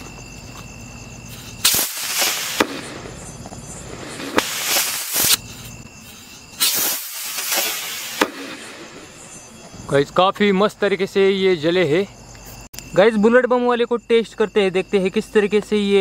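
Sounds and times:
rocket motors hissing: 1.3s - 9.5s
firecrackers cracking: 1.6s - 5.4s, 6.6s - 9.1s.

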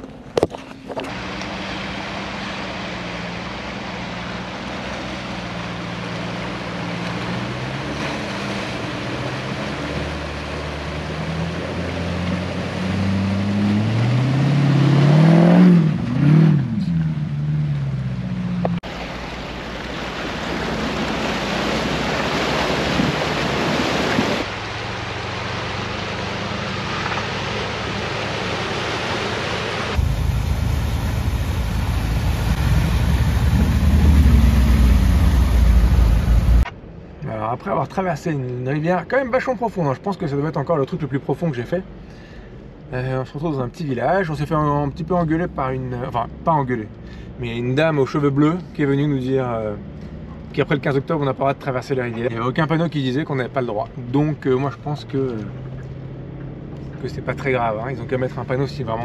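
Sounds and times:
water rushing and splashing: 0.0s - 38.1s, 38.8s - 59.0s
car engines running: 0.0s - 59.0s
engine revving: 1.1s - 18.8s, 20.4s - 36.7s.

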